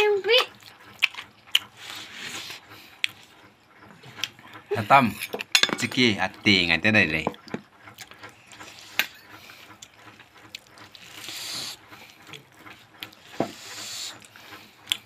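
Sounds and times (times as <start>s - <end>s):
wet chewing and lip-smacking: 0.4s - 4.7s, 7.3s - 15.0s.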